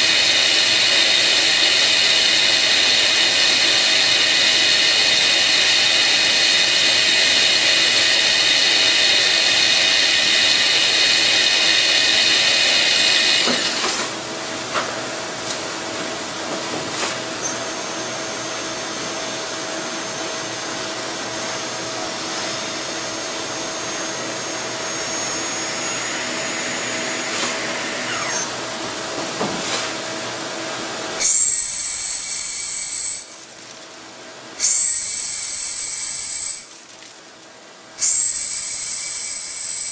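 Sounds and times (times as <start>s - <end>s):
lathe hum: 0.0s - 14.3s, 17.6s - 29.0s
lathe high whine: 0.0s - 14.4s, 17.3s - 29.0s, 34.6s - 36.7s, 38.0s - 39.9s.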